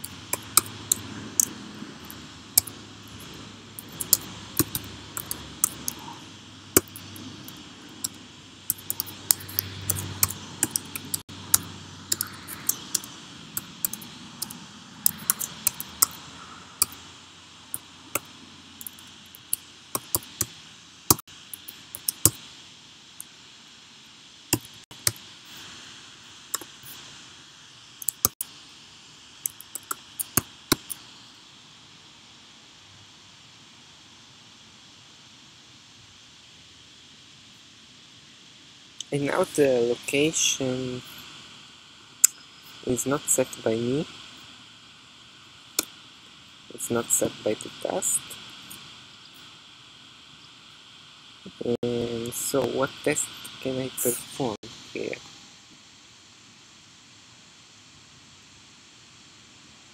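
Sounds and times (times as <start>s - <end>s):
typing on computer keyboard: 0.0s - 6.1s, 6.7s - 16.2s, 17.8s - 22.4s, 29.5s - 31.0s
faint hiss: 0.0s - 59.9s.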